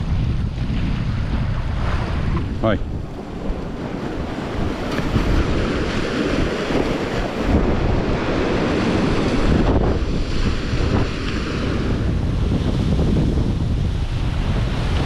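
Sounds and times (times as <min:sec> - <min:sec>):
wind rumbling on microphone: 0:00.0 - 0:15.0
sea surf breaking over rocks: 0:00.1 - 0:15.0.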